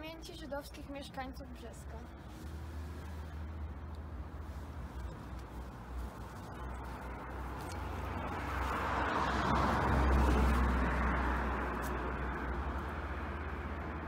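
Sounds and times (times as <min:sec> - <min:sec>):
steady low rumble: 0:00.8 - 0:14.0
car passing by: 0:01.9 - 0:14.0.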